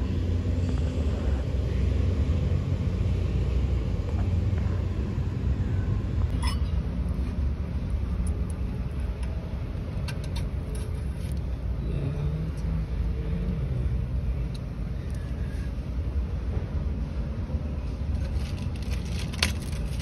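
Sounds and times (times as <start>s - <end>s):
low background rumble: 0.0s - 20.0s.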